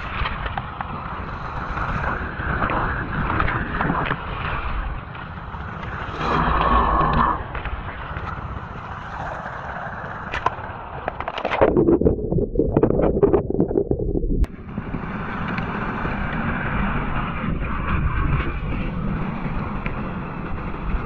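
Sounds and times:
muffled bubbly underwater sound: 6.0 - 7.6, 11.3 - 14.5.

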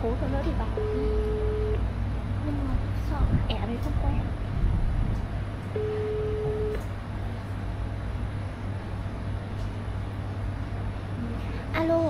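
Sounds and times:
phone ringback beep: 0.8 - 1.8, 5.8 - 6.8.

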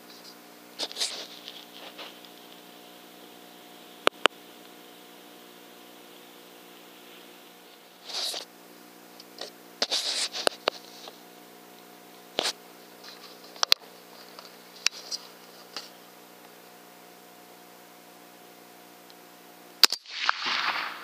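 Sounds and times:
rustle of handling: 0.0 - 2.8, 7.0 - 8.5, 9.1 - 11.3, 11.9 - 16.7
low electronic hum: 0.0 - 19.9.

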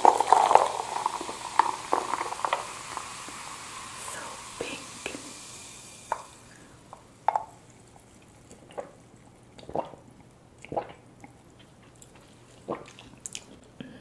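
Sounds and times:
person gulping a drink: 0.0 - 3.4, 6.1 - 14.0.

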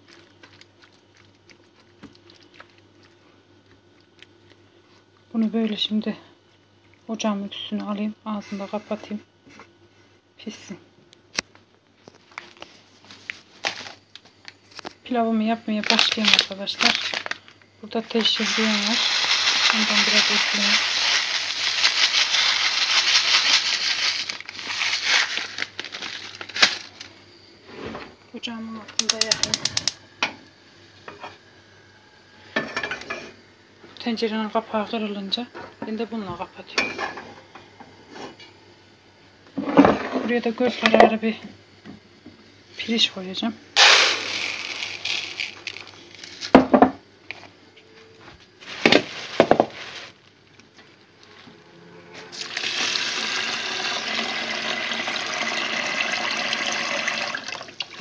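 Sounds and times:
plastic bag crinkling: 15.7 - 27.1, 43.8 - 46.6, 48.6 - 50.2
dry noodles pouring into pot: 18.2 - 26.7, 43.8 - 46.4, 52.3 - 58.0.

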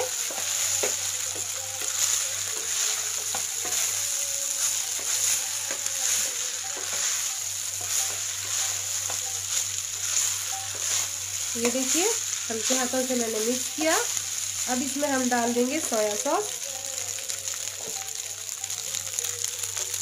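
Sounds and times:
spatula scraping pan: 0.0 - 14.8
rice and vegetables sizzling: 0.0 - 20.0.

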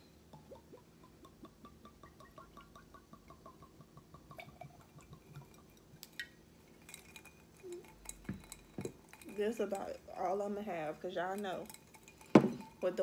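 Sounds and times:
liquid glugging into glass: 0.3 - 10.0.

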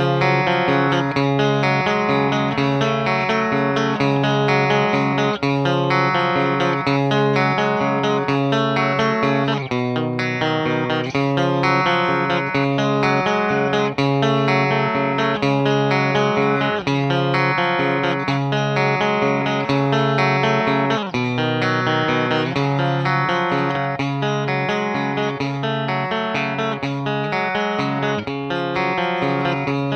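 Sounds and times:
electric guitar strummed chords: 0.0 - 29.9.

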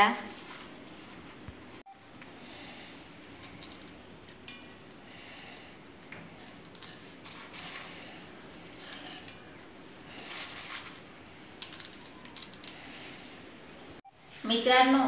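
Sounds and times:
soft rustling of crisp snack: 6.3 - 13.3.

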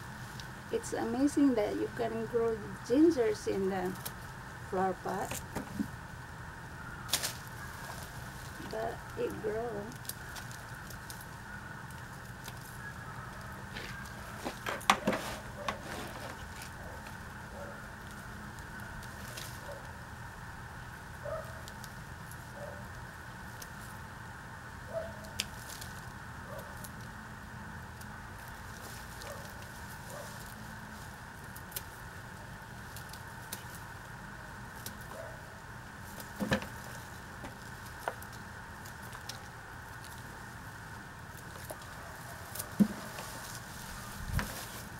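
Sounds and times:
steady low hum: 0.0 - 44.9
rustling of handled soil: 7.0 - 44.9
pruning shears snipping stalks: 7.1 - 11.4.

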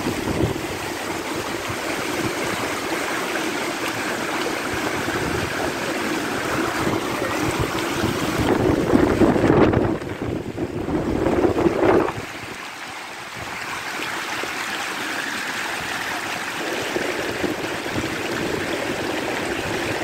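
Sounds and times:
wind buffeting microphone: 0.0 - 3.0, 4.0 - 12.6, 16.0 - 20.0
floodwater rushing: 0.0 - 20.0.

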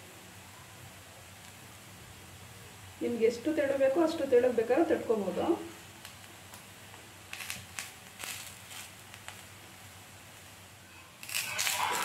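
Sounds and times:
food crackling in oil: 5.3 - 12.0.

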